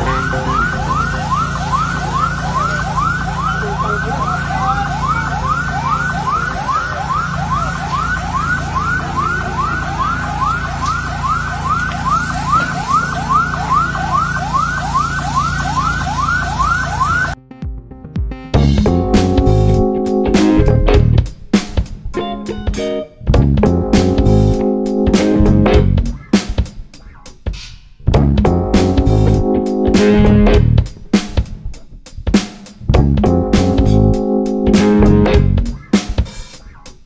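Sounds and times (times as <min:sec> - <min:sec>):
electronic siren yelping: 0:00.0 - 0:17.4.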